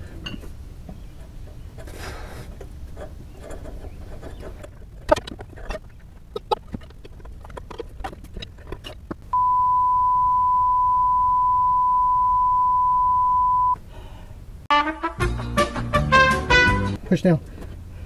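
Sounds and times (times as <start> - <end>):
censor beep: 9.3 - 13.8.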